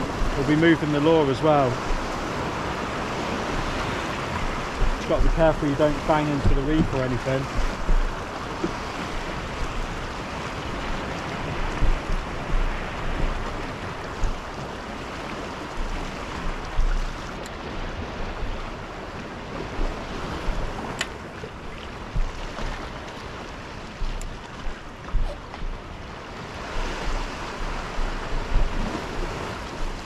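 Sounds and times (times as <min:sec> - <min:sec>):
sea surging over rocks: 0:00.0 - 0:30.0
wind gusting on microphone: 0:00.0 - 0:30.0
sharp click: 0:21.0 - 0:21.2.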